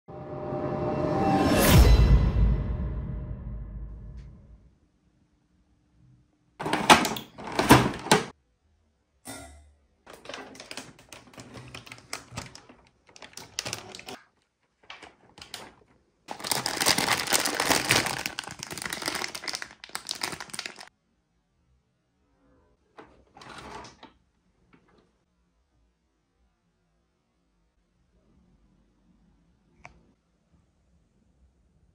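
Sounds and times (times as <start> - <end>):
plastic wrap crinkling: 10.1 - 20.9
cardboard box rustling: 10.5 - 14.2, 16.3 - 20.8.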